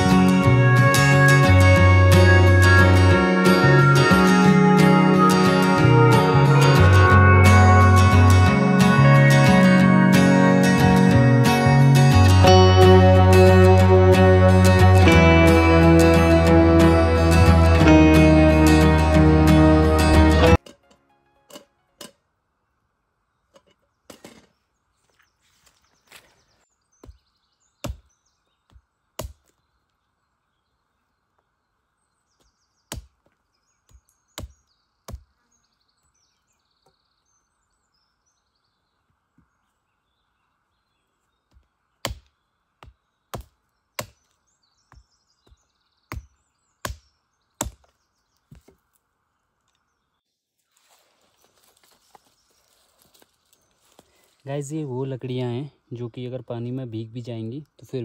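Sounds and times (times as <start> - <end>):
wood chopping knocks: 27.0 - 27.2, 27.8 - 28.1, 28.7 - 29.6, 32.9 - 35.3, 41.5 - 44.3, 44.9 - 48.8.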